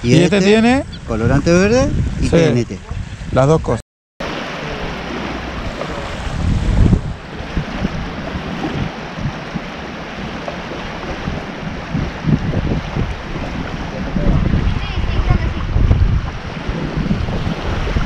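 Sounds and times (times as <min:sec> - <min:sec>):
wind buffeting microphone: 0:00.0 - 0:18.0
small waves lapping on shore: 0:04.2 - 0:18.0.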